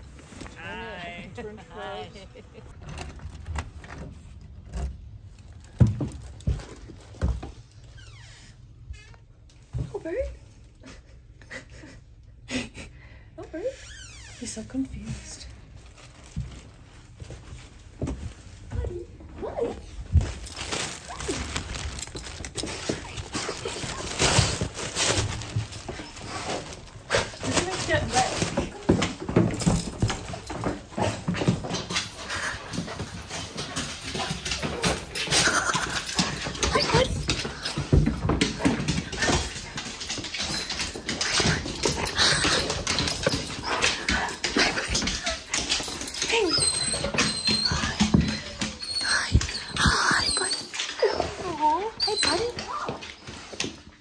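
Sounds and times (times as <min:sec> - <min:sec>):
dog scuffling: 0:14.5 - 0:54.0
dog whining: 0:33.8 - 0:39.7, 0:40.4 - 0:53.3.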